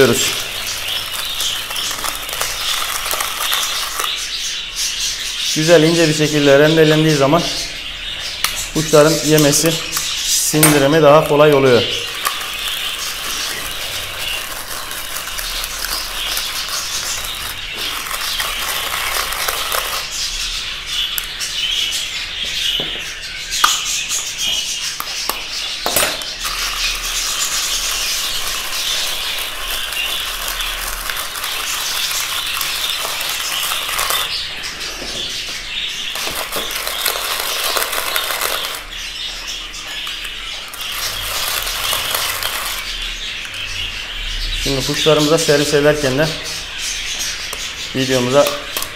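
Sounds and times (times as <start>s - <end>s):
budgerigars chattering and chirping: 0.0s - 48.9s
rotary grater rasping: 0.2s - 4.2s, 12.0s - 20.2s, 26.4s - 34.4s, 36.2s - 38.9s, 40.5s - 42.9s.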